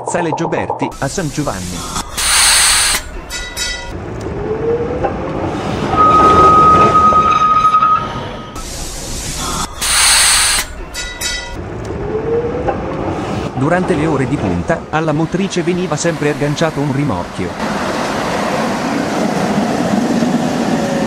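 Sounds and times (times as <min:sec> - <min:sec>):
air hiss: 0:01.0 - 0:03.2, 0:08.6 - 0:10.8
tram running with high squeal: 0:01.5 - 0:21.0
tram motor whine: 0:01.6 - 0:13.5.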